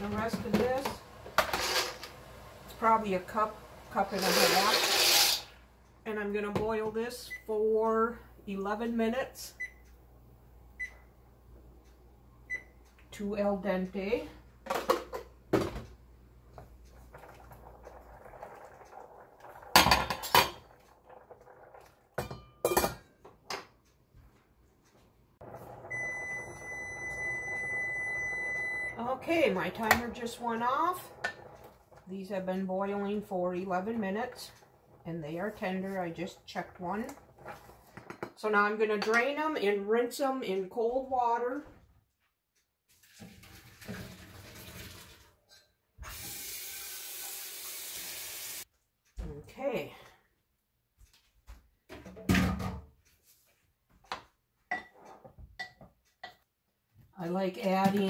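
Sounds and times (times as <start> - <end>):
kitchen timer beeping: 7.2 - 7.7, 9.5 - 10.0, 10.7 - 11.2, 12.4 - 13.0, 25.5 - 31.8
pasta poured into sink: 43.0 - 45.3
tap water running: 43.0 - 45.4, 46.0 - 48.7.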